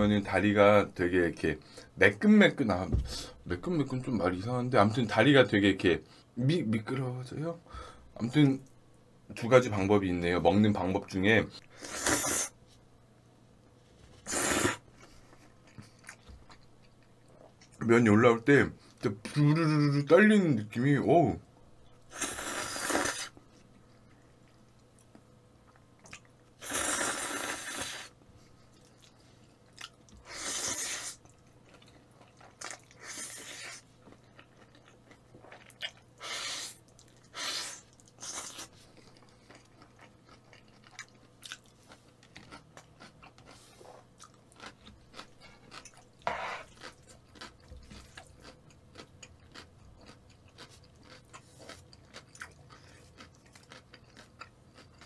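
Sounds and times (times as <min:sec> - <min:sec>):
man slurping noodles: 0:11.8 - 0:12.5, 0:14.3 - 0:14.8, 0:22.1 - 0:23.4, 0:26.6 - 0:28.1
wet chewing: 0:28.7 - 0:55.0.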